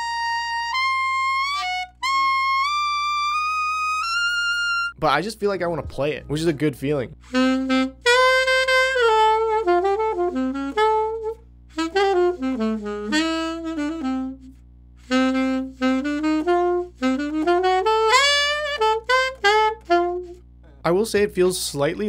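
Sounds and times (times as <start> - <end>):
alto saxophone playing quick notes: 0.0 - 5.0, 7.2 - 20.5
faint steady hum: 4.8 - 22.0.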